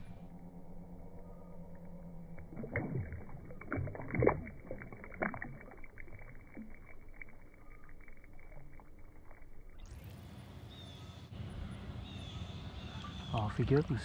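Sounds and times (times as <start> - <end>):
quiet water movement: 0.0 - 14.0
fish splashing in water: 2.3 - 10.4.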